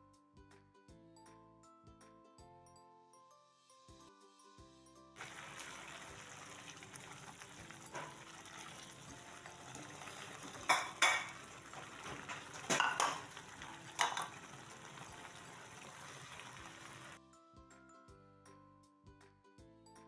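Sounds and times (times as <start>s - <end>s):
paste sizzling in frying pan: 5.2s - 17.2s
spatula clacking against pan: 10.4s - 15.4s.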